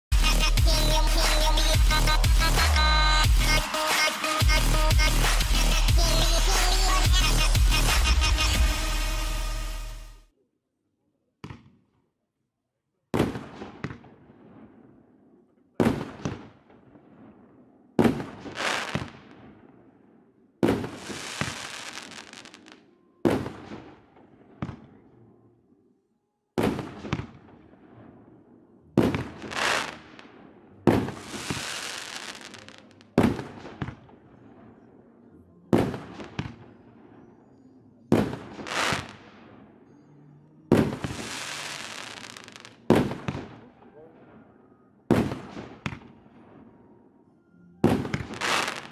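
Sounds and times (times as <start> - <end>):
firework bangs: 18.0 - 19.6, 20.6 - 24.0, 26.6 - 28.0, 29.0 - 34.2, 38.1 - 39.4, 40.7 - 43.6, 45.1 - 46.1, 47.8 - 48.9.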